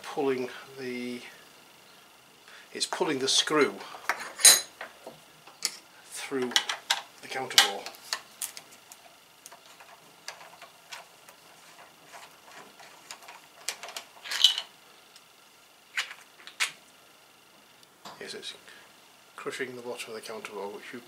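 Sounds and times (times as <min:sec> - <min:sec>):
plastic parts rattle: 0:07.6 - 0:14.7.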